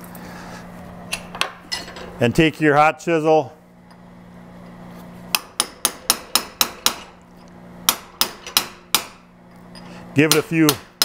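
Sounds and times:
hammer striking chisel on steel: 0:05.3 - 0:07.2, 0:07.9 - 0:09.3, 0:10.2 - 0:11.0.

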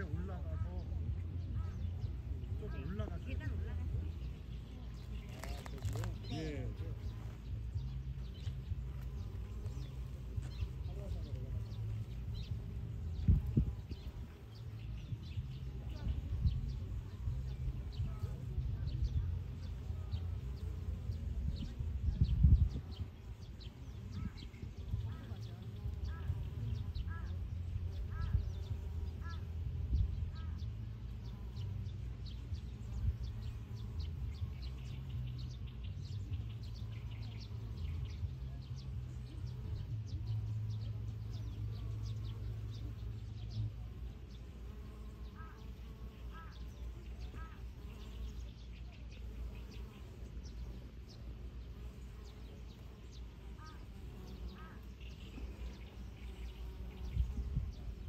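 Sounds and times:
birds calling: 0:00.0 - 0:58.0
wind buffeting microphone: 0:06.2 - 0:38.8, 0:55.6 - 0:58.0.

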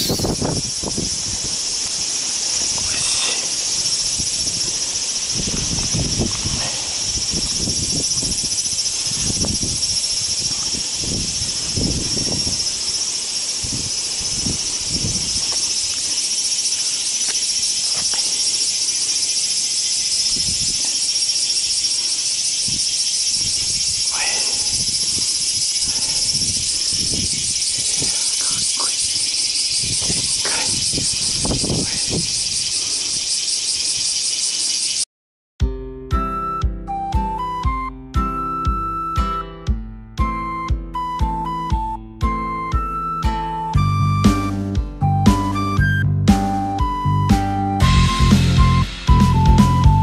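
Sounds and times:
high-pitched insect chorus: 0:00.0 - 0:35.1.

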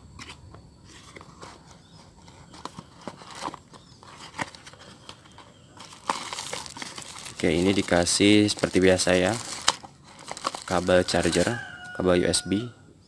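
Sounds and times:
cardboard box clicks and rustles: 0:02.2 - 0:11.6
plastic wrap rustling: 0:02.2 - 0:11.8.

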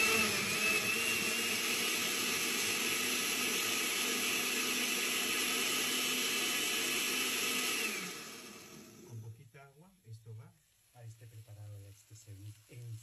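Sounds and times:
blender motor whining: 0:00.0 - 0:09.2.

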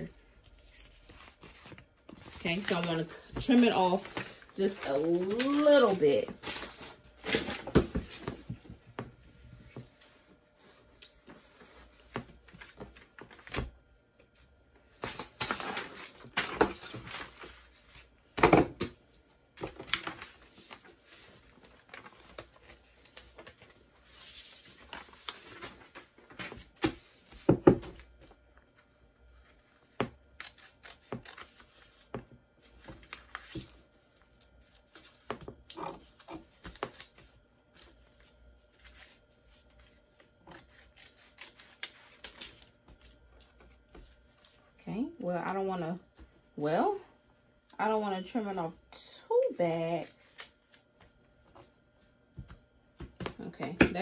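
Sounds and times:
paper rustling and crinkling: 0:00.5 - 0:08.8, 0:14.3 - 0:18.1, 0:19.6 - 0:44.6.

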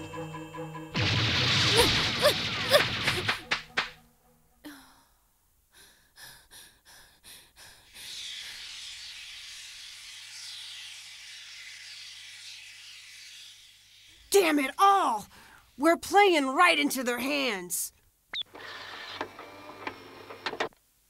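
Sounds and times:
sharp impacts: 0:00.9 - 0:04.4
steady hiss: 0:06.6 - 0:15.9.

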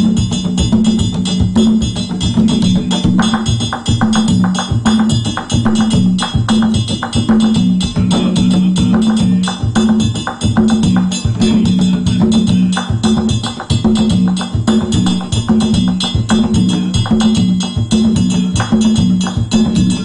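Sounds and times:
repeating low note: 0:00.0 - 0:09.8, 0:13.9 - 0:20.0
percussion ensemble playing: 0:00.0 - 0:20.0
wooden strikes: 0:00.0 - 0:20.0.

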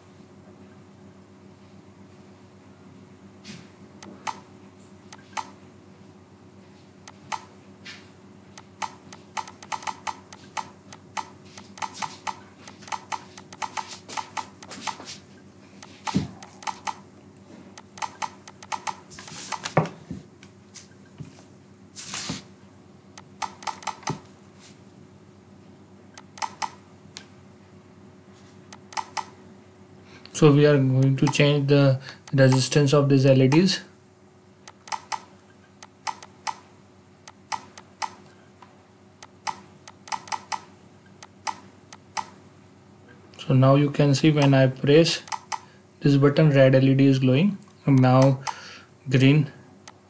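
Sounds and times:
faint steady hum: 0:00.0 - 0:50.0
mouse and keyboard clicks: 0:04.0 - 0:04.4, 0:05.1 - 0:05.5, 0:07.1 - 0:07.5, 0:08.6 - 0:15.0, 0:15.8 - 0:17.0, 0:17.8 - 0:19.8, 0:23.2 - 0:24.2, 0:26.2 - 0:26.8, 0:28.7 - 0:29.3, 0:32.2 - 0:32.8, 0:34.7 - 0:36.6, 0:37.3 - 0:38.3, 0:39.2 - 0:42.4, 0:45.2 - 0:45.7.

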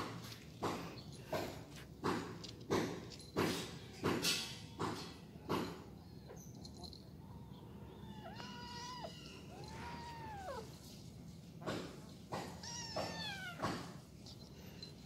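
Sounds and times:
cat meowing: 0:07.7 - 0:10.8, 0:12.5 - 0:14.0.

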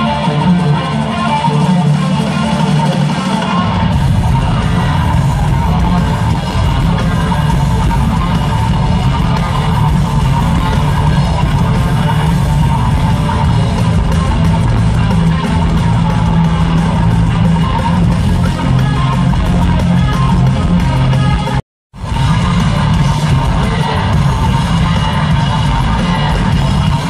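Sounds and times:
bass guitar: 0:00.0 - 0:27.0
distorted electric guitar: 0:00.0 - 0:27.0
drums: 0:00.0 - 0:27.0.

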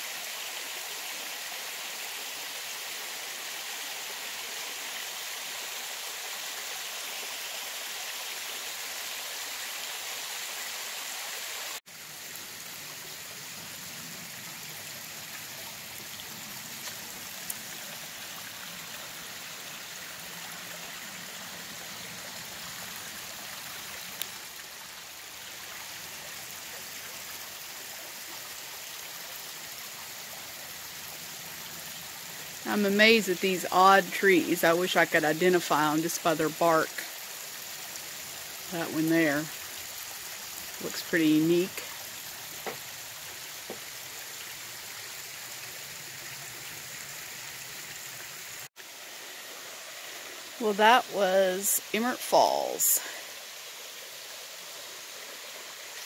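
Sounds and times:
waterfall splashing on rock: 0:36.0 - 0:46.0.

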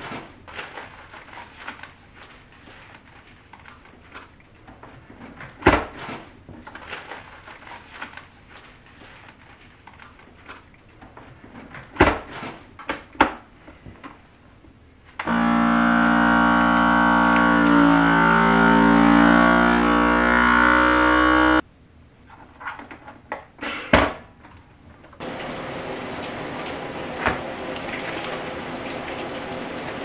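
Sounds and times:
plastic bags rustling: 0:00.0 - 0:12.8
vacuum sealer pump humming: 0:15.2 - 0:21.6.

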